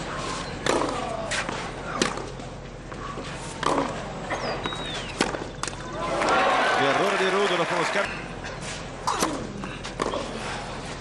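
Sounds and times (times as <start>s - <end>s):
crowd noise: 5.7s - 11.0s.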